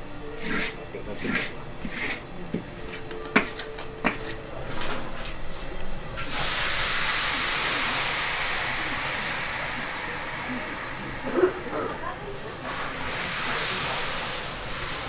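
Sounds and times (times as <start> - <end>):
hot syrup hissing: 0.2 - 2.2, 6.2 - 15.0
wok knocking and scraping metal: 0.3 - 5.0.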